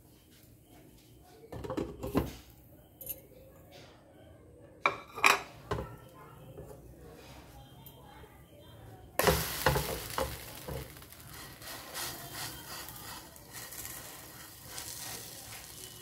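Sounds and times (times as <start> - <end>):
pancake sizzling in frying pan: 9.2 - 16.0.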